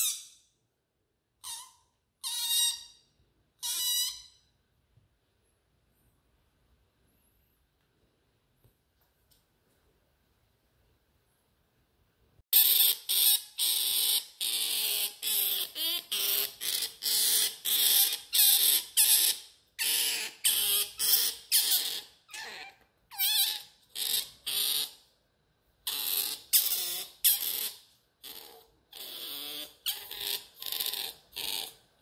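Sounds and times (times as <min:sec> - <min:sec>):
otter pup squealing: 0:01.4 - 0:03.0, 0:03.6 - 0:04.4, 0:12.5 - 0:25.1, 0:25.8 - 0:32.0.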